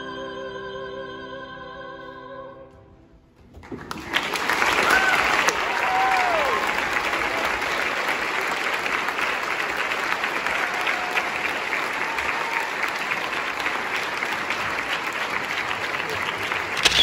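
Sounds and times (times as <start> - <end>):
audience applauding: 3.6 - 17.0
falling whoop: 4.8 - 6.8.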